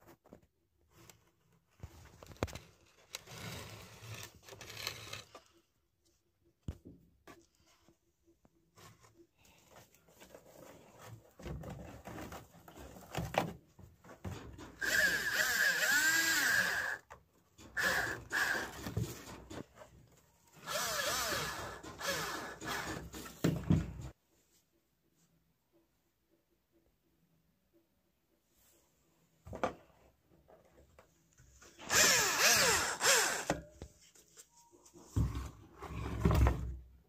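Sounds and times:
cordless drill motor whine: 14.8s - 17.1s, 17.8s - 18.8s, 20.6s - 23.0s, 31.8s - 33.6s.

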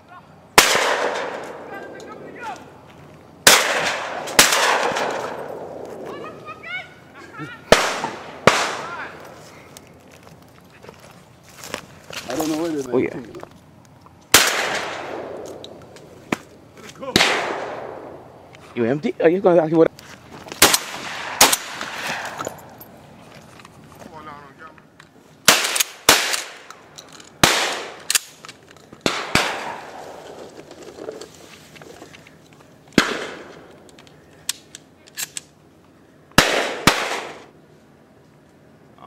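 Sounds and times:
shotgun blasts: 0.6s - 1.8s, 3.4s - 5.8s, 7.7s - 9.1s, 14.3s - 15.6s, 17.1s - 18.2s, 20.6s - 22.4s, 25.5s - 26.7s, 27.4s - 28.3s, 29.0s - 30.2s, 33.0s - 33.6s, 36.4s - 37.5s.

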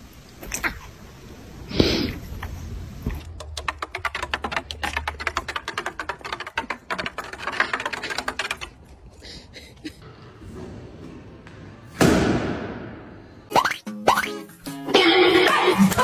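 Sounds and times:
dog paws clattering on wooden steps: 3.3s - 8.8s.

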